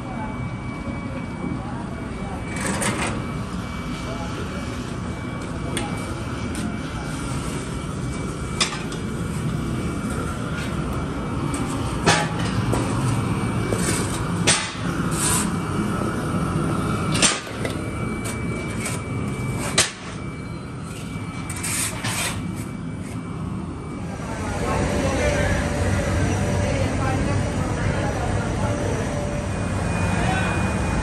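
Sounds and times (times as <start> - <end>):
workshop machine noise: 0.0 - 31.0.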